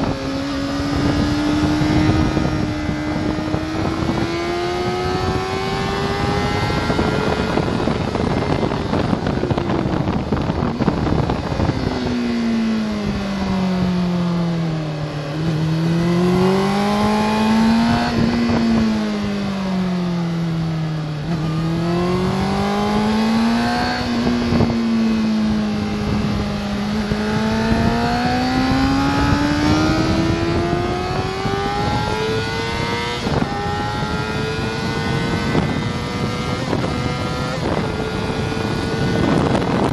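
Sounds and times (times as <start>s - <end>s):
motorcycle engine at speed: 0.0s - 39.9s
wind rush on microphone: 0.0s - 39.9s.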